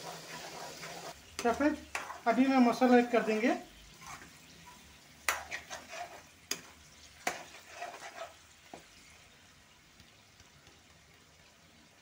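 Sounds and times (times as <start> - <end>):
spatula scraping pan: 0.0 - 9.2
faint sizzle of frying: 0.0 - 12.0
spatula clacking on metal pan: 1.3 - 2.3, 5.2 - 8.4.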